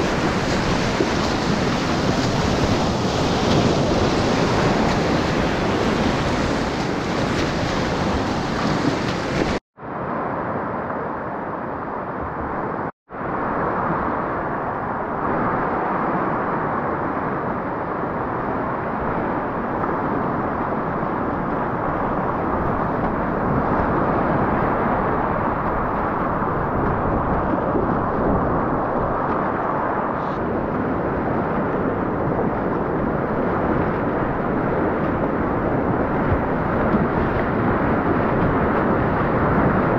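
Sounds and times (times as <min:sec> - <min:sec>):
whitewater rapids rushing: 0:00.0 - 0:09.6.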